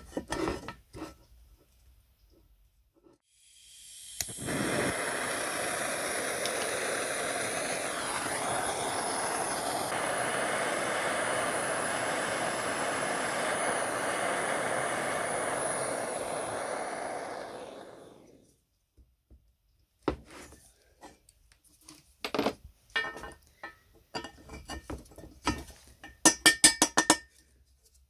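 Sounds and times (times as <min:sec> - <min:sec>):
gas torch flame hissing: 0:03.2 - 0:18.6
torch lighting click: 0:04.0 - 0:18.4.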